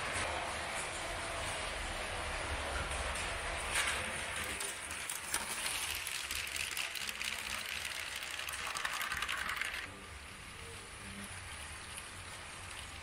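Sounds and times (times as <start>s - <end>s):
toy train wheels clicking on track: 4.5s - 9.9s.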